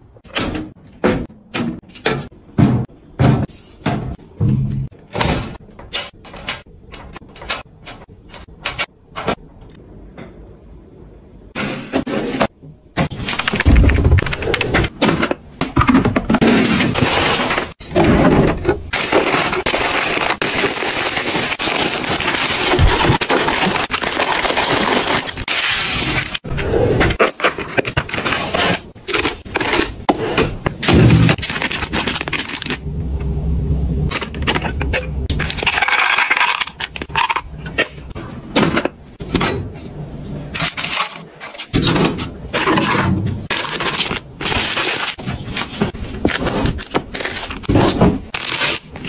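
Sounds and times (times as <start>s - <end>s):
wrappers and cardboard rustling: 18.9s - 26.4s, 42.6s - 49.0s.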